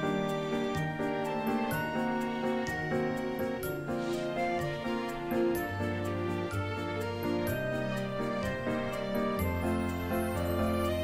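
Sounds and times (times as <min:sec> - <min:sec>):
instrumental music with sustained notes: 0:00.0 - 0:11.0.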